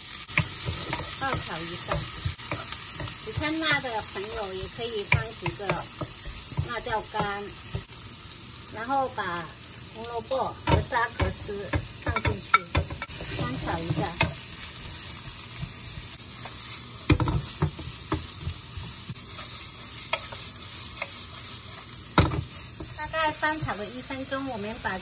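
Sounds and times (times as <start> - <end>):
vegetables sizzling in oil: 0.0 - 25.0
wooden spatula scraping a pan: 0.3 - 7.9, 13.0 - 24.7.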